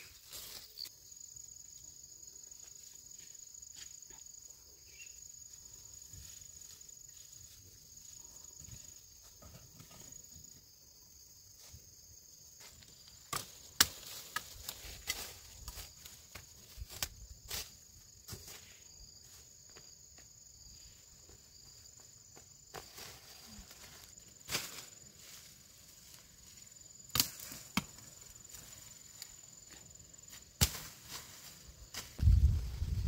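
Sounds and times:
high buzz of insects: 0.0 - 33.0
machete chopping bamboo: 27.1 - 28.0, 30.6 - 31.1.

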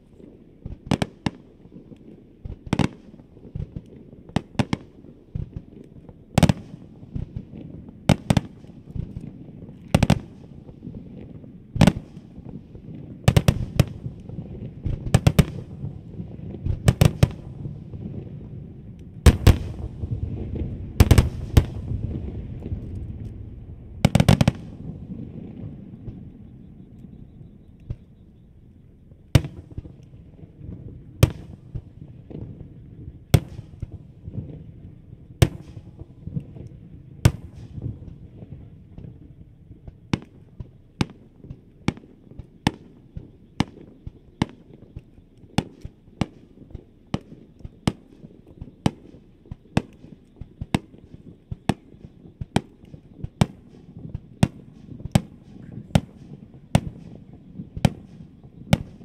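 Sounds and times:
low rumble: 17.8 - 28.7
firework shells bursting: 19.3 - 26.3, 39.8 - 59.0.

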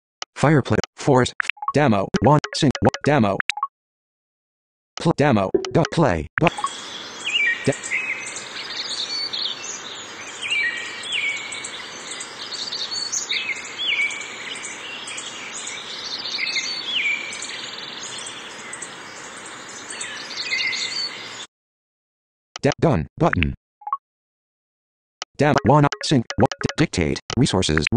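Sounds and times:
steady background hiss: 6.5 - 21.4
birds chirping and whistling: 6.5 - 21.5.

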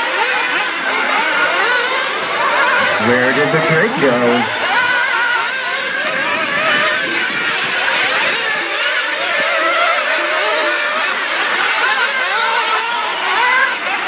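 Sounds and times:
rc buggy engines whining: 0.0 - 14.0.

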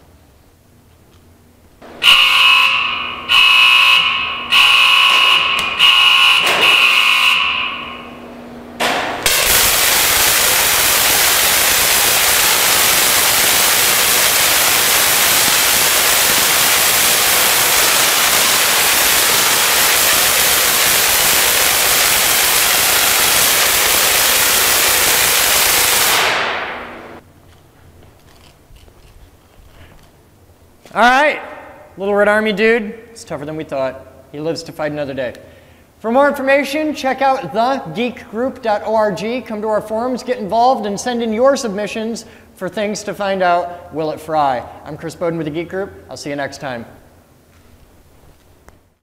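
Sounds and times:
pulsing warning tone: 2.0 - 8.3
electric arc sizzling: 9.2 - 27.2.

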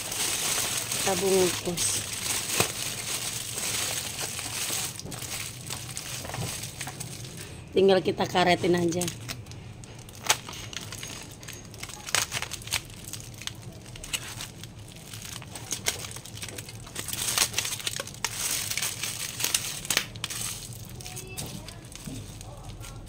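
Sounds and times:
foil and plastic bag crinkling: 0.0 - 23.0.

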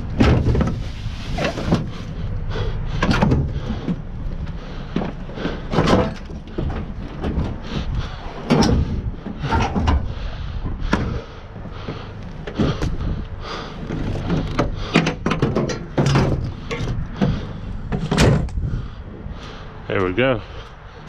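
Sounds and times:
sheet-metal bangs and scrapes: 14.2 - 18.6.

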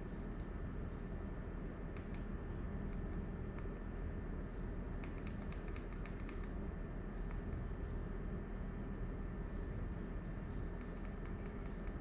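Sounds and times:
steady low hum: 0.0 - 12.0
small sharp clicks: 1.9 - 2.3, 2.9 - 4.1, 5.0 - 8.0, 10.8 - 12.0.

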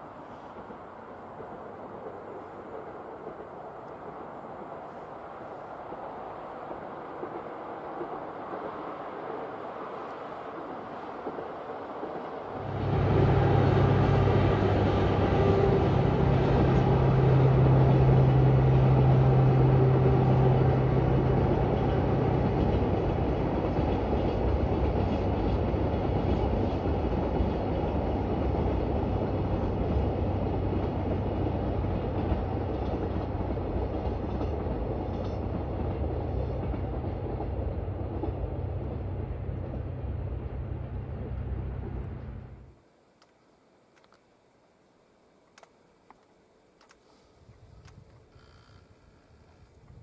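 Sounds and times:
locomotive engine drone: 7.9 - 42.8
freight wagons rumbling: 11.1 - 42.7.

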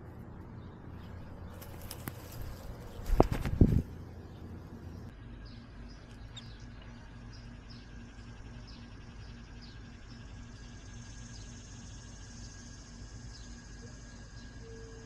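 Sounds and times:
low outdoor rumble: 0.0 - 15.0
faint small bird chirps: 5.2 - 15.0.

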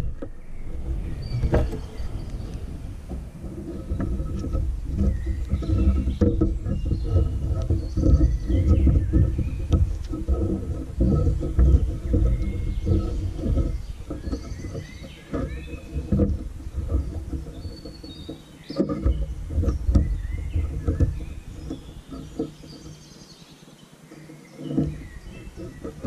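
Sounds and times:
steady low rumble: 0.0 - 16.8
cord rustling and scraping on wood: 0.0 - 26.0
small birds chirping: 0.0 - 26.0.

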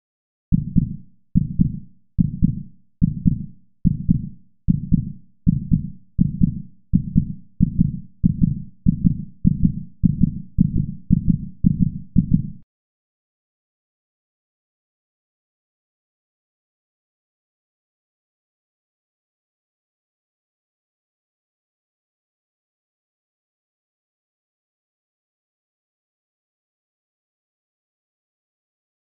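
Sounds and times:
heartbeat thumps: 0.5 - 12.6.

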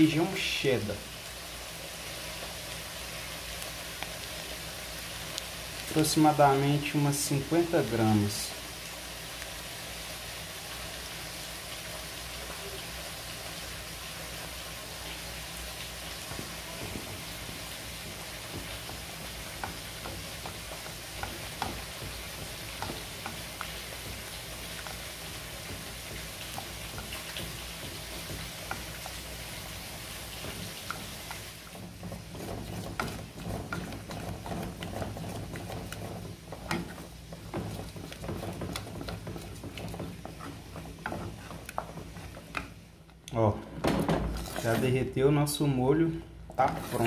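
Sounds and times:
steady sizzling hiss: 0.0 - 47.0
spatula stirring thick sauce: 15.6 - 43.0.

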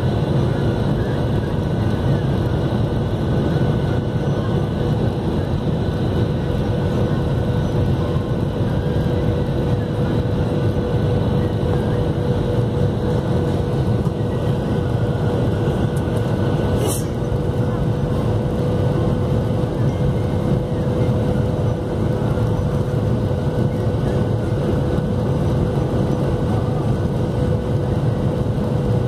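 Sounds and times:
airflow rushing past cabin: 0.0 - 29.0
faint steady whine: 0.0 - 29.0
jet engines humming: 0.0 - 29.0.

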